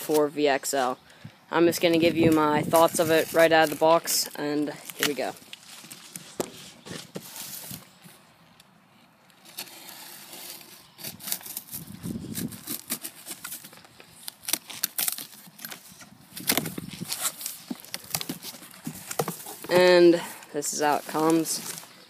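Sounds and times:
knife slitting packing tape: 0:09.4 - 0:18.4
cardboard box flaps rustling: 0:16.4 - 0:20.2.

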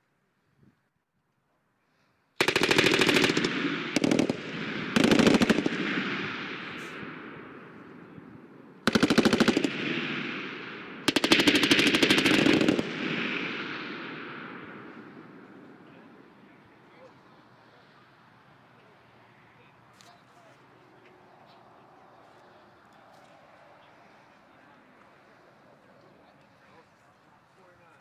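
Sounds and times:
machine gun bursts: 0:02.4 - 0:04.4, 0:05.0 - 0:05.8, 0:08.9 - 0:09.7, 0:11.1 - 0:12.9
rolling gunfire echo: 0:02.4 - 0:16.7.

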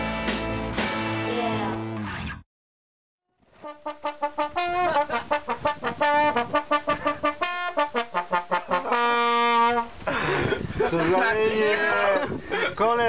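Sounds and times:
trombone playing: 0:03.6 - 0:10.0.

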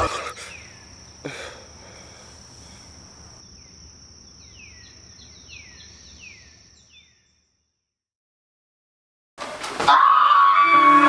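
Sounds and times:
bird chirping: 0:00.3 - 0:01.2, 0:03.0 - 0:07.7.

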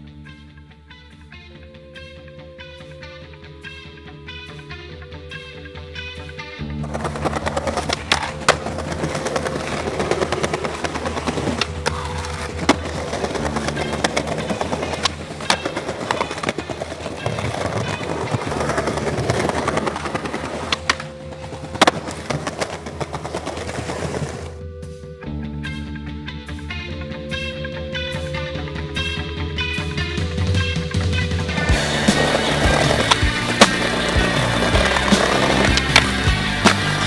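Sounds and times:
background music: 0:00.0 - 0:37.0
skateboard wheels rolling on stone: 0:06.6 - 0:24.6, 0:29.0 - 0:37.0
skateboard clacks: 0:06.7 - 0:24.6, 0:30.5 - 0:37.0.

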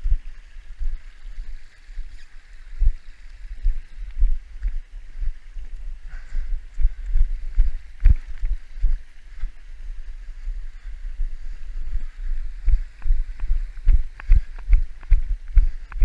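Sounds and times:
wind rumbling on microphone: 0:00.0 - 0:16.0.

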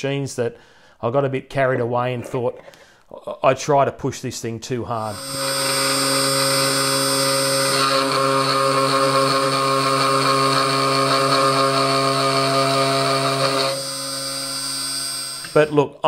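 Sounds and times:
bit cutting into wood: 0:05.1 - 0:15.7
router spindle motor whine: 0:05.1 - 0:15.7.

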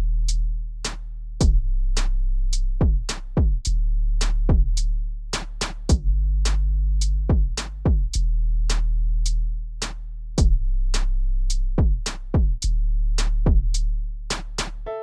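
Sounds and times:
deep sustained bass: 0:00.0 - 0:14.3
drum machine beat: 0:02.8 - 0:03.7, 0:07.3 - 0:08.2, 0:11.8 - 0:12.7, 0:13.5 - 0:13.7.

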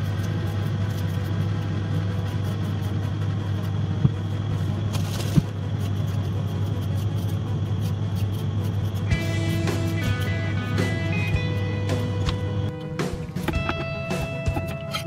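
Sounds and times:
peeler scraping potato skin: 0:00.0 - 0:12.7
steady low hum: 0:00.0 - 0:15.0
music with plucked notes: 0:09.1 - 0:15.0.

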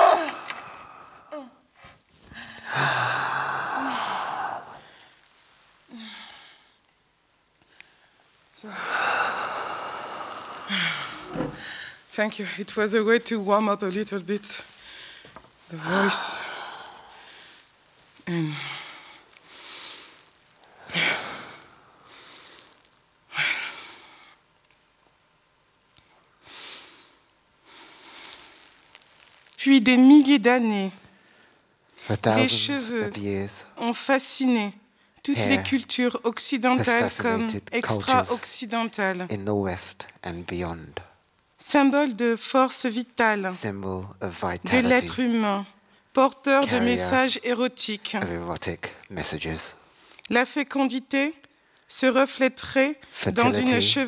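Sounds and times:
breathy exhalations: 0:00.0 - 0:05.2, 0:08.7 - 0:12.0.

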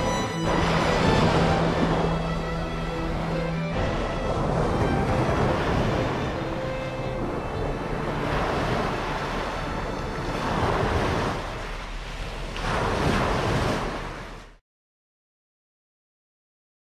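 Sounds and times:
wind rumbling on microphone: 0:00.0 - 0:14.6
small waves washing on sand: 0:03.0 - 0:14.6.

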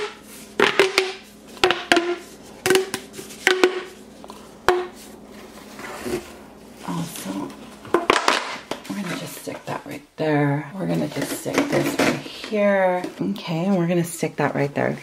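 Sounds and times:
plastic pop tubes popping: 0:00.0 - 0:03.9, 0:04.7 - 0:04.9.

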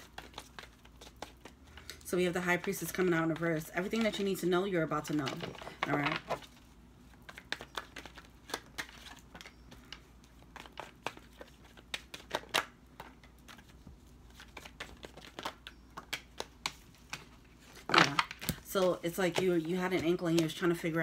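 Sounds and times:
cards shuffling clicks and snaps: 0:00.0 - 0:02.0, 0:07.2 - 0:20.8.

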